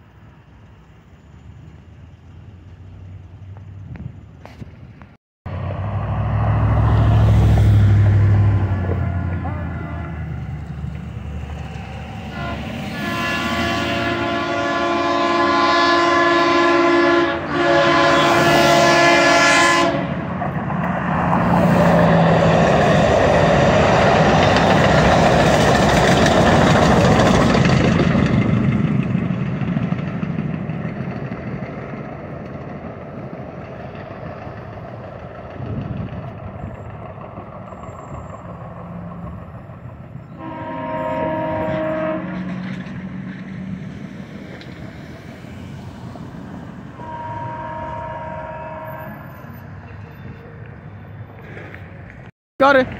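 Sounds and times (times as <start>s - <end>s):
train rumbling past on rails: 0.0s - 52.9s
train horn blasts: 8.5s - 10.4s, 12.3s - 20.4s, 40.3s - 42.9s, 46.9s - 49.6s.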